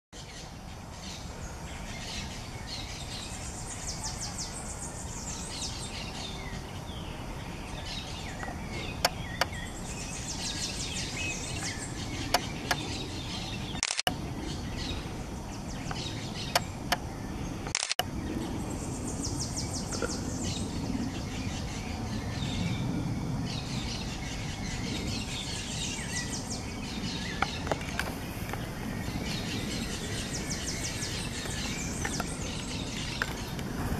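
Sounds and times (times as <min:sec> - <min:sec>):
steady background hum: 0:00.3 - 0:33.9
sharp clicks: 0:13.8 - 0:14.2, 0:17.6 - 0:18.1.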